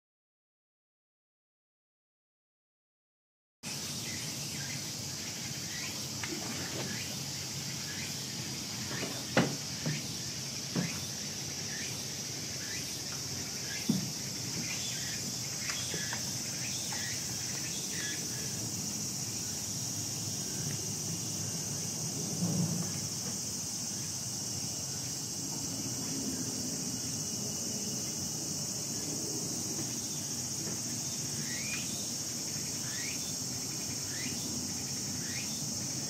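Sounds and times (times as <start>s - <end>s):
high-pitched insect chorus: 3.6s - 36.0s
short knocks: 8.9s - 10.0s.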